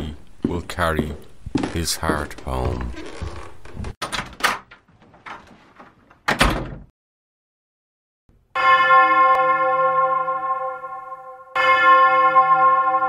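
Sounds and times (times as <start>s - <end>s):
bell-like chime: 8.6s - 13.0s.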